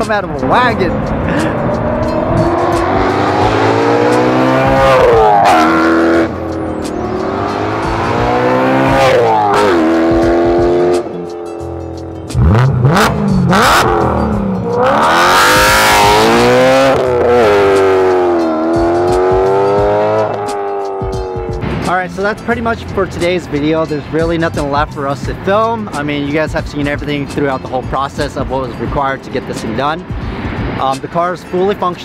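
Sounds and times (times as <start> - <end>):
car engine revving hard: 0.4 - 11.1, 12.3 - 21.5.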